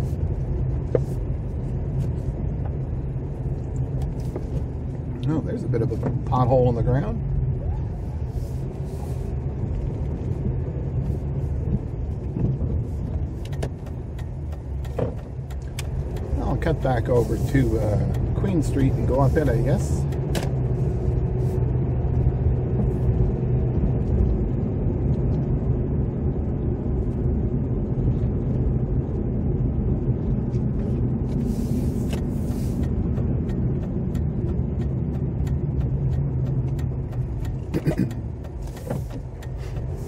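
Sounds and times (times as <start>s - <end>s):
car road and engine rumble: 0.0s - 40.0s
faint regular ticking: 13.4s - 20.3s, 32.2s - 40.0s.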